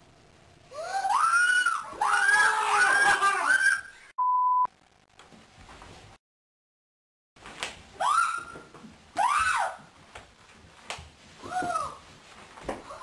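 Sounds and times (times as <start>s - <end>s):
woman squealing: 0.8s - 4.1s, 8.0s - 8.6s
test tone beep: 4.2s - 4.7s.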